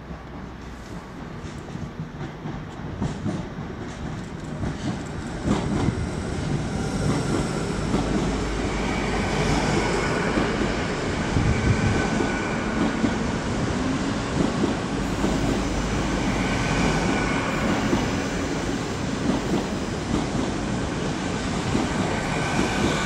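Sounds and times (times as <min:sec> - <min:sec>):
train rumbling: 0:00.0 - 0:23.0
train wheel clicks: 0:00.2 - 0:05.9.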